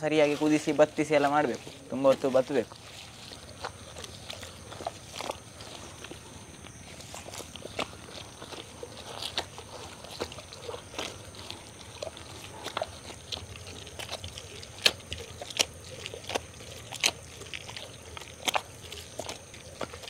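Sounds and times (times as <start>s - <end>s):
crunches: 0.0s - 20.0s.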